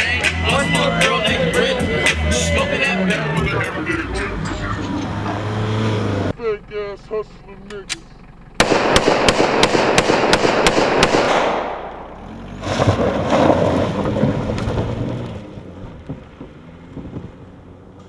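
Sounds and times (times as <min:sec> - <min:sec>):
car engine revving and driving off: 0:00.0 - 0:06.6, 0:08.2 - 0:18.0
handgun shots: 0:08.6 - 0:11.9.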